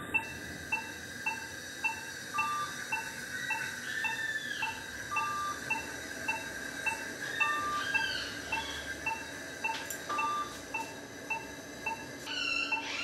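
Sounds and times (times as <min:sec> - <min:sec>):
patient monitor short beeps: 0:08.5 - 0:12.1.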